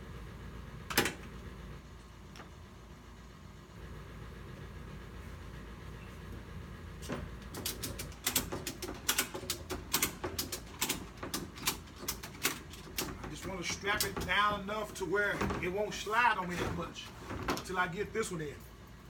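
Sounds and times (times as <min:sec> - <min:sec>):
ratchet strap clicking: 0:07.5 - 0:13.2.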